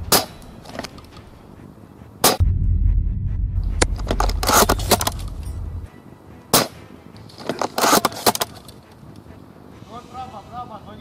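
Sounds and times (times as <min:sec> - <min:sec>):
deep low rumble: 0:02.4 - 0:05.9.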